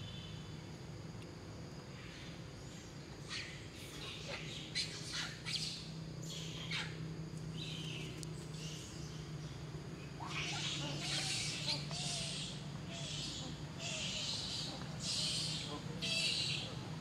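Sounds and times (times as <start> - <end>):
steady low hum: 0.0 - 17.0
high-pitched animal calls: 10.2 - 16.8.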